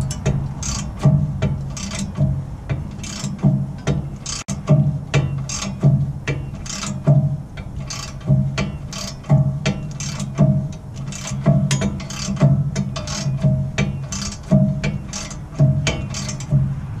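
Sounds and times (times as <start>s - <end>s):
hand ratchet clicks: 0.0s - 16.7s.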